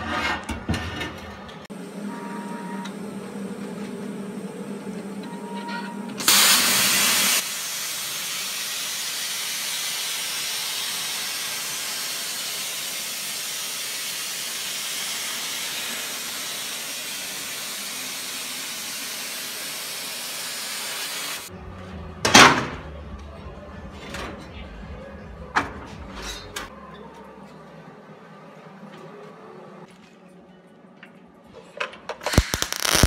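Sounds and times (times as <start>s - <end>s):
plasma arc hissing: 6.2s - 21.5s, 32.3s - 33.0s.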